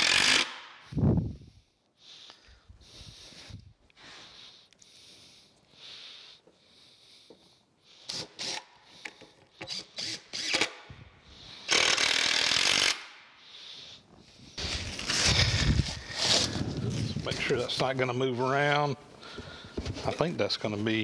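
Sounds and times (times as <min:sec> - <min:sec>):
cordless drill driving a screw: 0:00.0 - 0:00.6, 0:08.0 - 0:10.9, 0:11.6 - 0:13.1.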